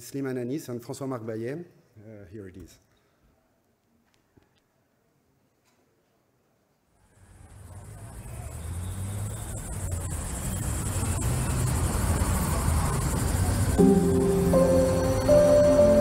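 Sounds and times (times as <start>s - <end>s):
high insect-like hiss: 8.7s - 16.0s.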